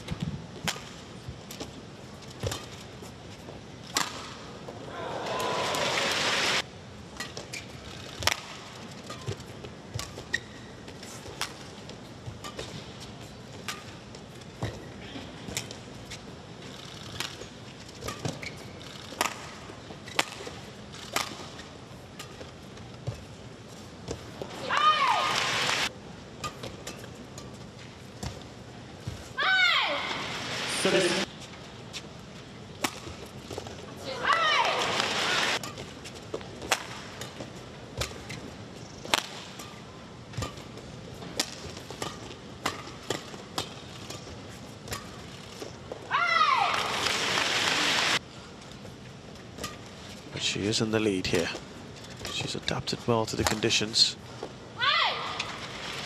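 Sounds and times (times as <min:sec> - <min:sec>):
rackets striking shuttlecock: 0:19.1 - 0:22.4, 0:34.4 - 0:45.8.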